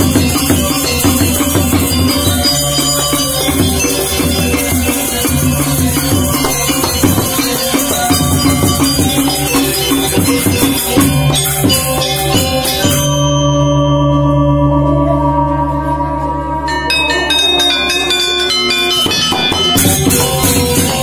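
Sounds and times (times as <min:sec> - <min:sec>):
gamelan ensemble playing: 0:00.0 - 0:21.0
gong ringing: 0:12.9 - 0:21.0.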